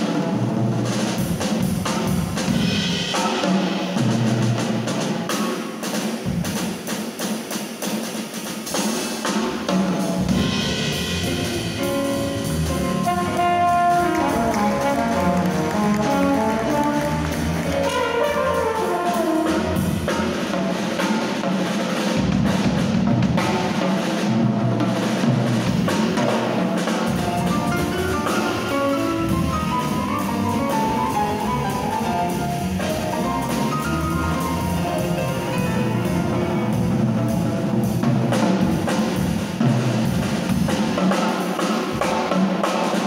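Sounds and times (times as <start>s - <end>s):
drum kit with busy cymbals: 0.0s - 43.0s
grand piano: 0.0s - 43.0s
walking double bass: 10.2s - 20.9s, 27.1s - 40.4s
slide trombone melody: 10.3s - 20.4s, 27.1s - 38.0s.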